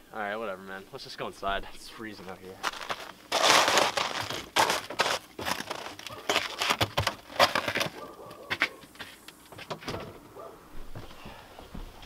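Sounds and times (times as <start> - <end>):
rustling: 2.3 - 12.0
footsteps: 2.6 - 12.0.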